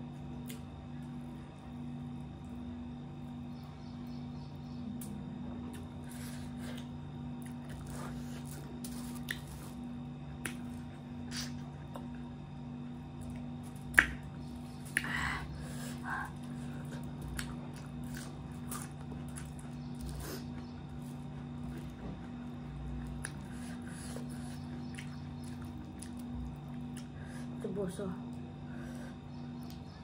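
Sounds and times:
steady low hum: 0:00.0 - 0:30.0
wet chewing and lip smacks: 0:00.4 - 0:00.7, 0:06.8 - 0:12.2, 0:16.2 - 0:27.2.

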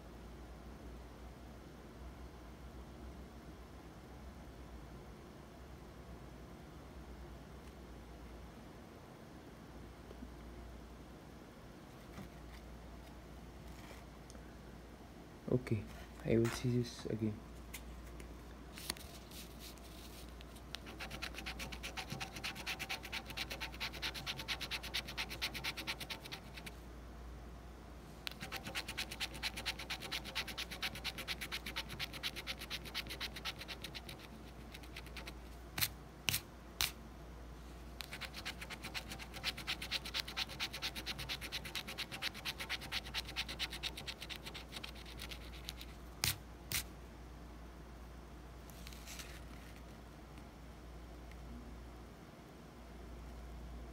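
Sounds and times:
coin scratching lottery ticket: 0:20.8 - 0:26.7, 0:28.3 - 0:35.4, 0:38.0 - 0:46.4.

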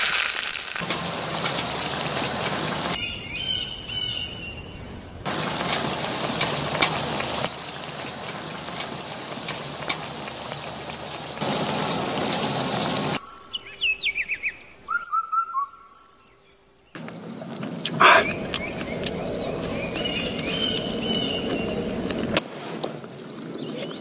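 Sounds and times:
hot oil sizzling: 0:00.0 - 0:03.0, 0:05.3 - 0:13.2
birds chirping: 0:00.8 - 0:22.4, 0:23.1 - 0:24.0.

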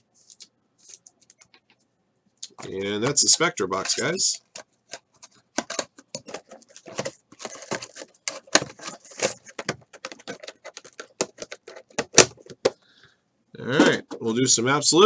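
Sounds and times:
cards and cardboard box handled: 0:03.7 - 0:12.8.

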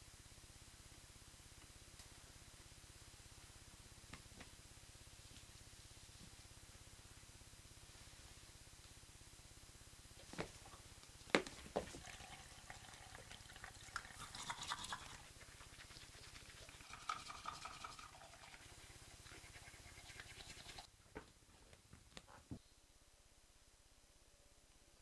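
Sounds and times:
faint scrubbing at washbasin: 0:14.2 - 0:20.9.

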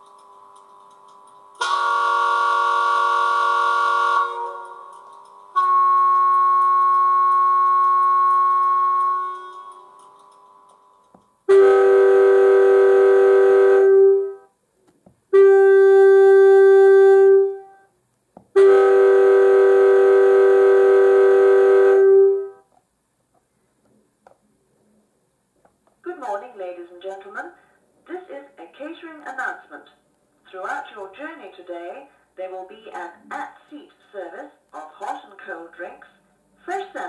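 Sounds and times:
two-tone train horn blasts: 0:01.6 - 0:10.1, 0:11.5 - 0:14.5, 0:15.3 - 0:17.9, 0:18.6 - 0:22.7.

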